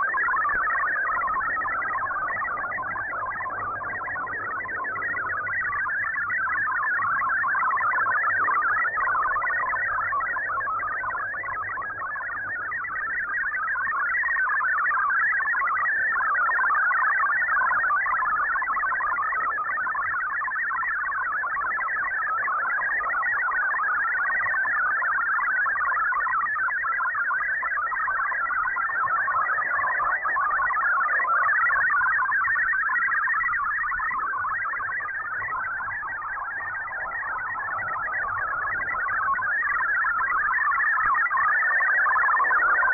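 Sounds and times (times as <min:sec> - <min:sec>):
digital radio signal warble: 0:28.2 - 0:42.9.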